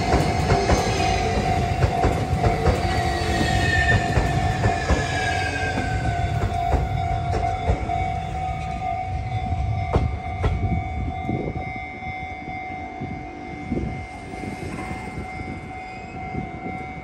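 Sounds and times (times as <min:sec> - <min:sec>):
electric train rumble: 0:00.0 - 0:17.0.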